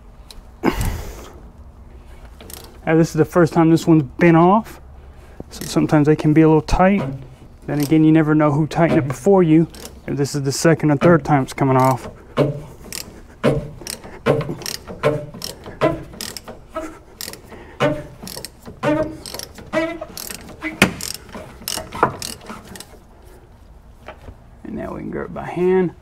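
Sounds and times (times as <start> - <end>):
hand ratchet clicking: 2.4 - 2.8, 5.5 - 6.0, 6.7 - 10.1, 11.0 - 23.0.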